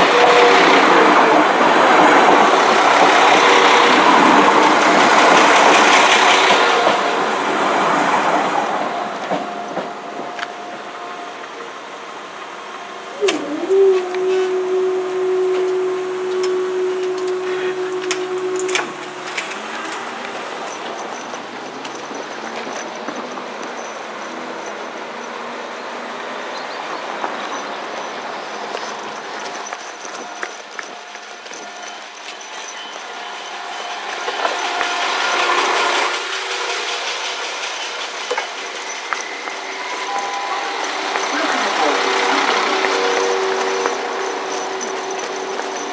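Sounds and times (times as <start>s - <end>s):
train wheels rattling on rails: 0.0s - 45.9s
level crossing alarm tone: 13.1s - 36.2s, 38.3s - 45.9s.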